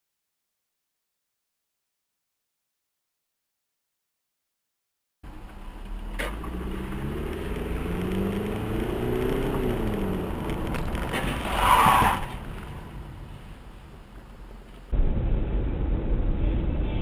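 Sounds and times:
car engine: 5.2 - 16.5
road noise: 5.2 - 17.0
loud rough crash burst: 15.0 - 17.0.

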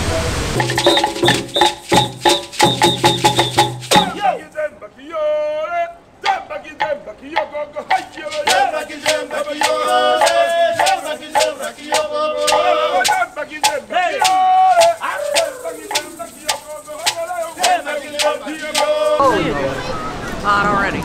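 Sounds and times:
hand drum beats: 0.6 - 4.3, 7.4 - 19.2
group singing and chanting: 0.6 - 4.7, 6.2 - 19.7.

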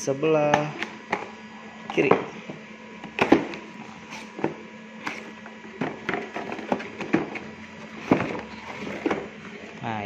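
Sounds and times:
cardboard box scraping and crackling: 6.2 - 9.7.

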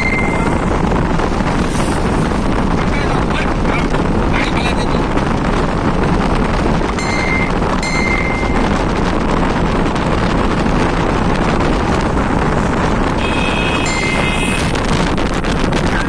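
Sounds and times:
short high-pitched tones: 0.0 - 0.8, 7.0 - 8.8, 13.2 - 14.8
road and engine noise: 0.0 - 16.0
wind rushing over microphone: 0.0 - 16.0.

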